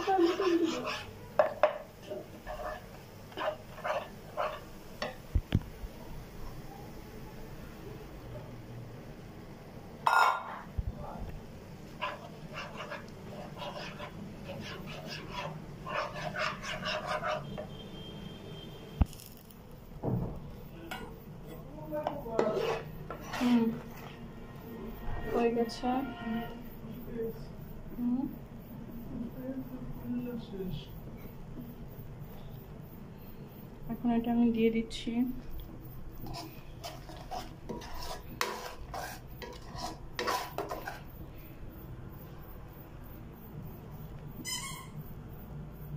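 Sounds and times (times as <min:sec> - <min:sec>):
metal spatula scraping a pan: 0:00.0 - 0:05.2, 0:11.9 - 0:18.1, 0:21.5 - 0:26.6, 0:36.2 - 0:41.1.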